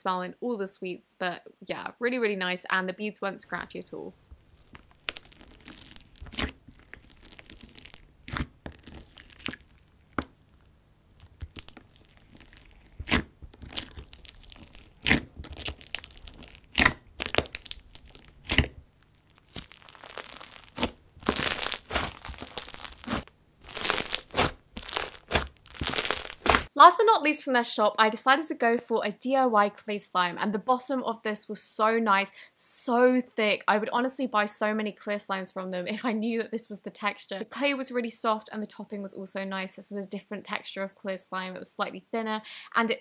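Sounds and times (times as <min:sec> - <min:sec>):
slime popping and crackling: 0:04.3 - 0:26.7.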